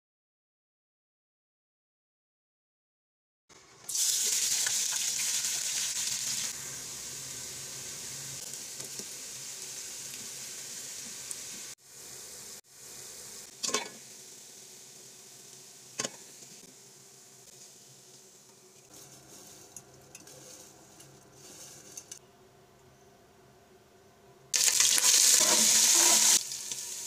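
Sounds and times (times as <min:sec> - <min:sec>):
onions sizzling in oil: 0:03.9 - 0:22.2, 0:24.6 - 0:27.0.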